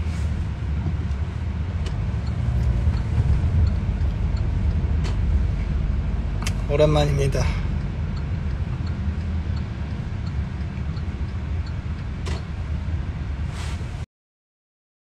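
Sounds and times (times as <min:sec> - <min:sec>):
car cabin rumble: 0:00.0 - 0:14.0
short swishes: 0:13.5 - 0:14.0.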